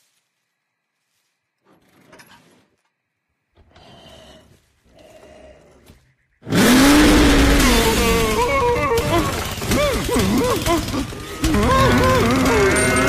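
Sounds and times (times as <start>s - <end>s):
cartoon snoring: 6.4s - 13.0s.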